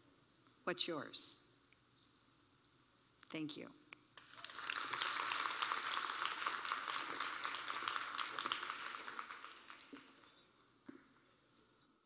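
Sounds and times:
audience applauding: 0:04.2 - 0:10.5.

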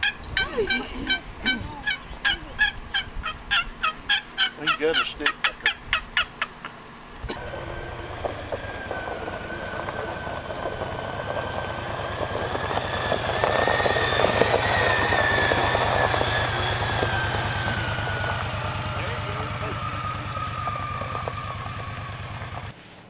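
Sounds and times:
high whine: 0:00.0 - 0:22.7
utility vehicle engine running: 0:01.5 - 0:22.8.

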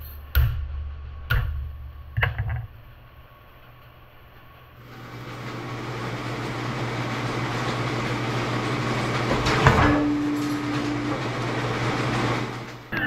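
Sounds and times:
hydraulic press running: 0:04.8 - 0:13.0.

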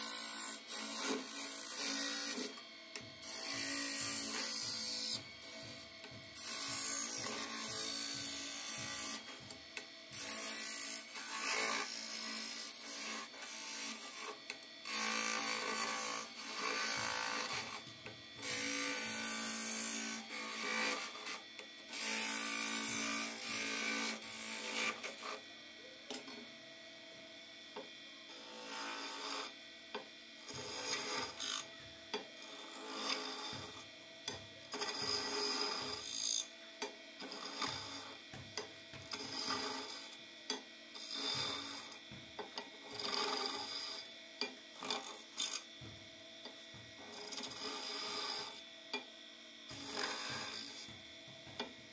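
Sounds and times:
chisel scraping wood on lathe: 0:00.0 - 0:02.6, 0:28.3 - 0:29.5, 0:30.5 - 0:31.6, 0:32.4 - 0:33.8, 0:34.7 - 0:36.5, 0:37.2 - 0:38.2, 0:39.1 - 0:40.2, 0:41.0 - 0:42.0, 0:42.8 - 0:44.1, 0:44.8 - 0:45.6, 0:47.1 - 0:48.6, 0:49.7 - 0:50.9
lathe humming: 0:00.0 - 0:51.9.

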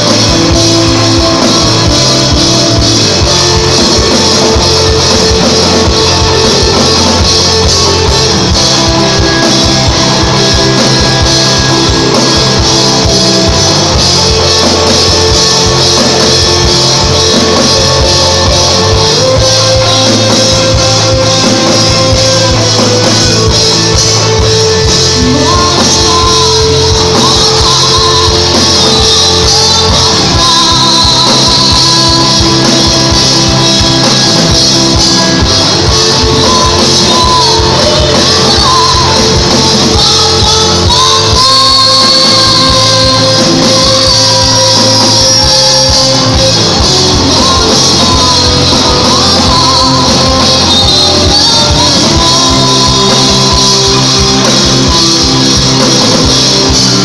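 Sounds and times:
lead singer singing: 0:00.0 - 0:57.0
live rock band playing: 0:00.0 - 0:57.0.

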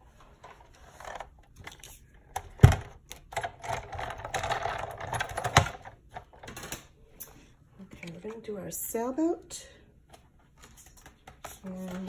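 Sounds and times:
plastic clicking and rattling: 0:00.4 - 0:06.9.

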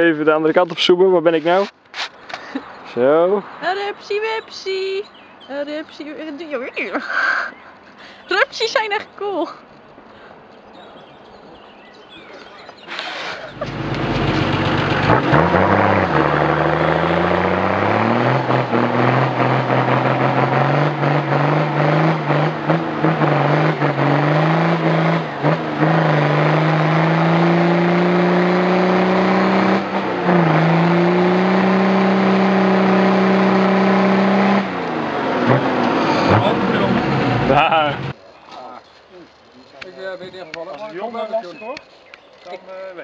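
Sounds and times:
engine revving hard: 0:13.4 - 0:38.2.

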